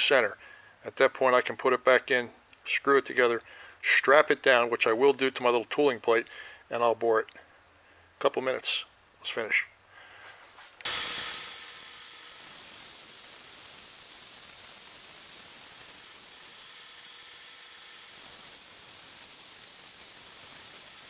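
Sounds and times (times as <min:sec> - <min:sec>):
bandsaw cutting metal: 0:10.8 - 0:21.0.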